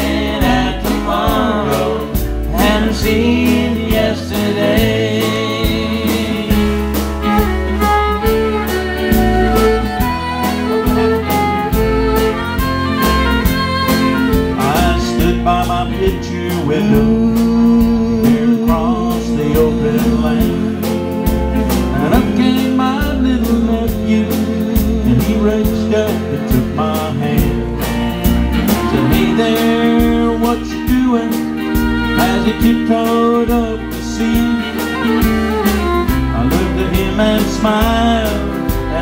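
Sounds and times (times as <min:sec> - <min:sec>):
fiddle sliding melody: 0:00.0 - 0:17.3, 0:18.2 - 0:39.0
drums steady beat: 0:00.0 - 0:39.0
strummed acoustic guitar: 0:00.0 - 0:39.0.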